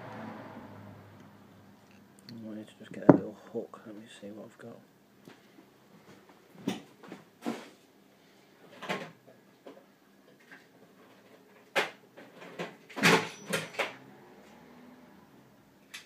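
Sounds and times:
objects knocking and clattering: 3.0s - 3.3s.

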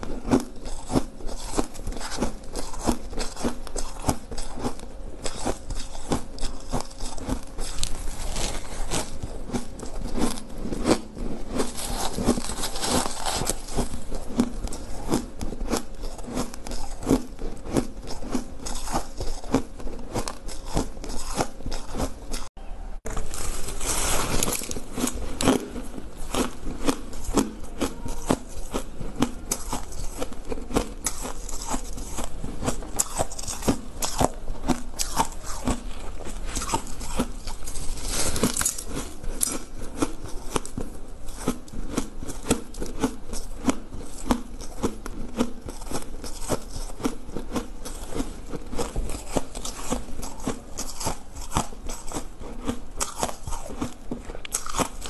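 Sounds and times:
ice crunching while chewed: 0.0s - 22.5s, 23.1s - 55.0s.

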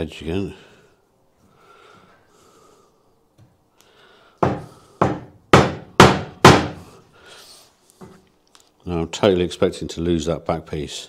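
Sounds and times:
mallet striking a chisel: 4.4s - 6.7s.

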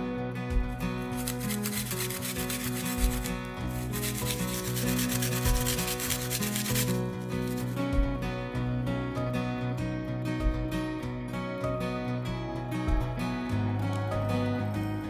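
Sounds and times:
acoustic guitar music: 0.0s - 15.0s
garlic rasping on plastic grater: 1.0s - 7.7s.

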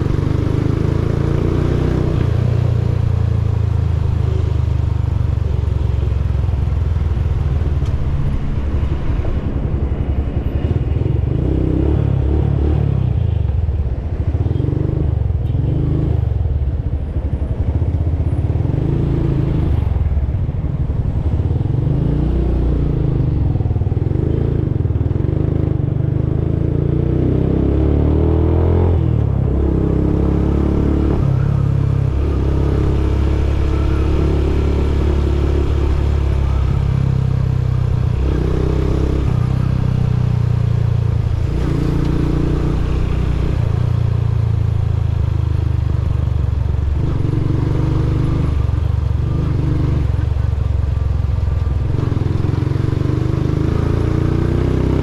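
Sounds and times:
motorcycle engine revving: 21.2s - 55.0s.

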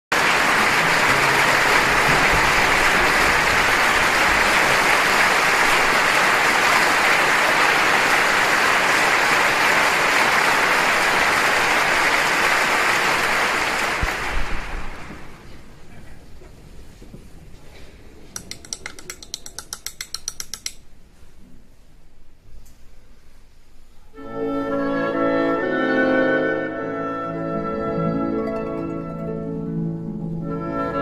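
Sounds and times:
audience applause: 0.1s - 15.6s.

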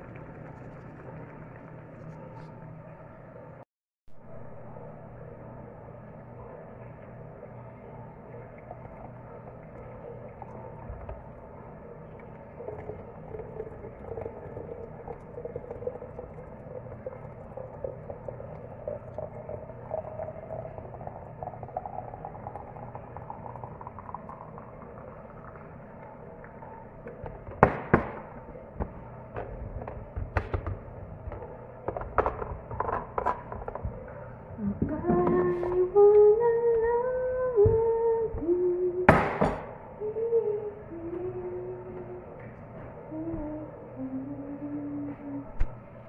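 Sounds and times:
liquid trickling into pitcher: 8.2s - 27.6s.

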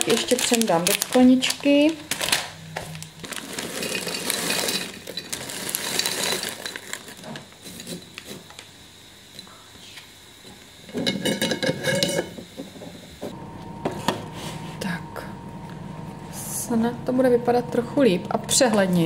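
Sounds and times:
plastic bag rustling: 0.0s - 8.7s.

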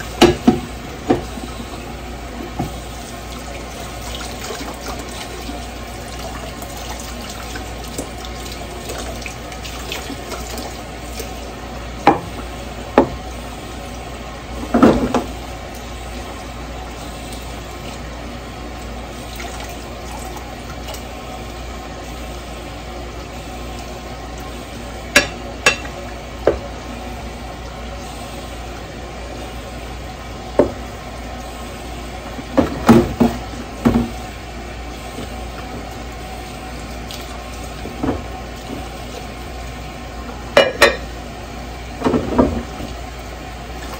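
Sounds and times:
tap running into sink: 0.2s - 1.4s, 2.5s - 2.8s, 30.6s - 30.8s, 32.6s - 34.2s, 42.0s - 43.0s
dishes clinking: 40.6s - 41.1s.

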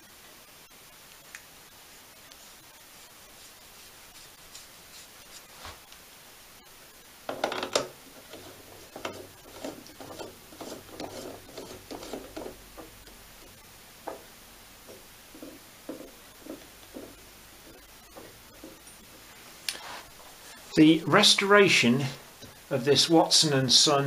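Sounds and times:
light clicks and rubs: 8.2s - 12.9s.

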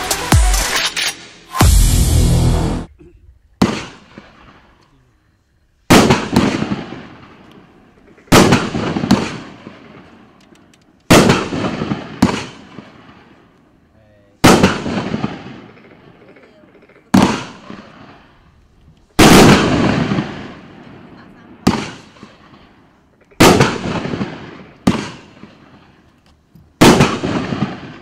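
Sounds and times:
fireworks bangs: 3.5s - 4.8s, 5.9s - 10.4s, 11.1s - 13.4s, 14.4s - 16.3s, 17.0s - 18.4s, 19.2s - 26.0s, 26.7s - 28.0s.

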